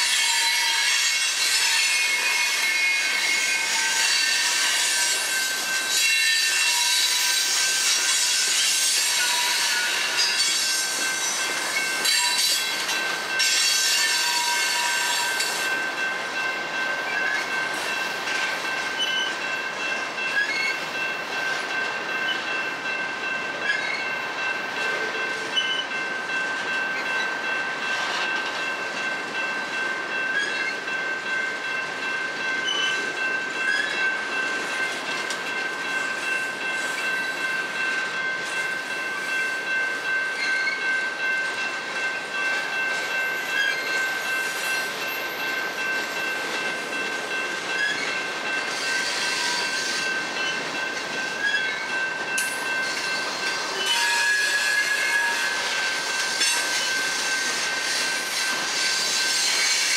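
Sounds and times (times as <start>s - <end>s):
train wheels rumbling on rails: 0.0s - 59.9s
high-pitched wheel squeal: 53.8s - 55.8s.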